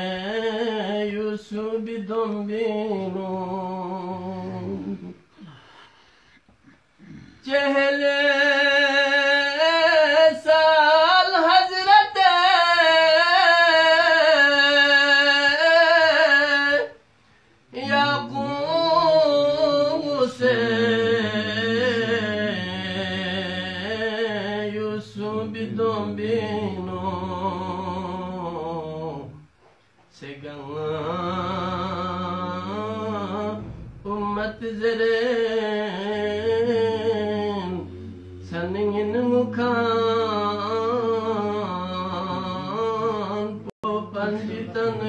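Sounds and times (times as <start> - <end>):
man singing unaccompanied: 0.0 - 5.3, 7.4 - 17.0, 17.7 - 29.5, 30.1 - 45.0
steady low hum: 0.0 - 45.0.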